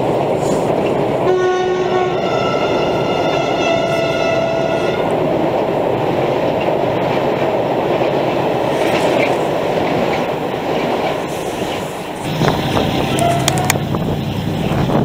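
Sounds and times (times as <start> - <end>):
freight train rumbling over bridge: 0.0 - 15.0.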